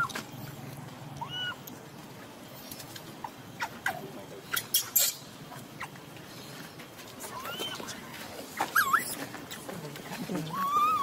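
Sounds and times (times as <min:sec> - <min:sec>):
baby monkey high squeak: 0:01.2 - 0:01.6, 0:03.6 - 0:05.2, 0:08.6 - 0:09.3, 0:10.5 - 0:11.0.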